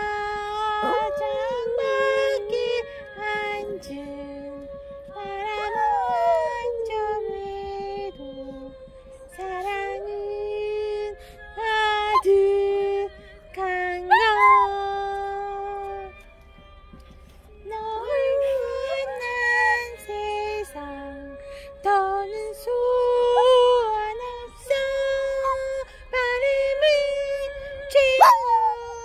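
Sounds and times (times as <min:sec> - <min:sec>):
dog howling: 0:00.4 - 0:02.5, 0:05.2 - 0:07.2, 0:14.0 - 0:15.1, 0:18.0 - 0:20.4, 0:23.1 - 0:24.1, 0:25.0 - 0:25.8, 0:27.9 - 0:29.0.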